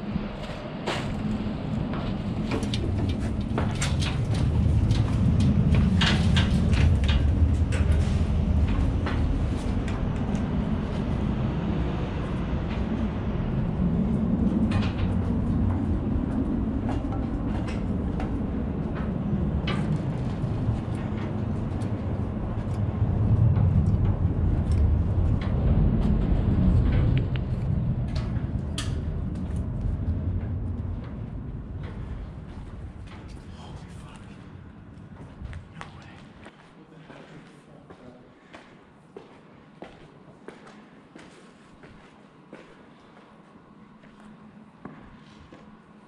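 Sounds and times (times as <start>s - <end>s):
steady low rumble: 0.0s - 41.2s
footsteps on rubble and metal grating: 0.1s - 11.2s, 14.2s - 45.9s.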